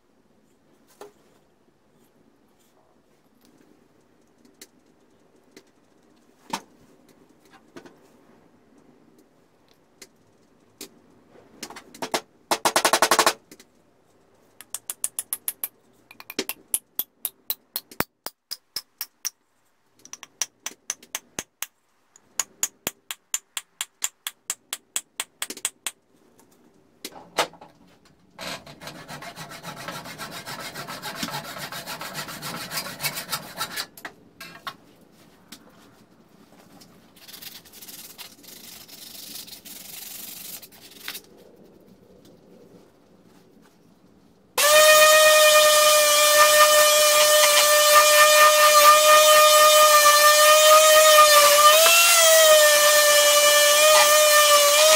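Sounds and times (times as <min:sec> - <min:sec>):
rough scraping on wood: 0:28.4 - 0:34.0.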